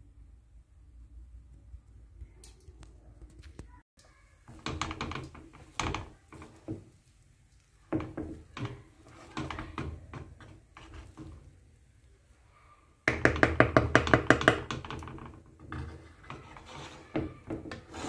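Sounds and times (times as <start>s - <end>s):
wooden spoon stirring rice: 4.0s - 18.0s
spoon scraping and knocking pan: 4.4s - 7.0s, 7.9s - 11.6s, 13.1s - 18.0s.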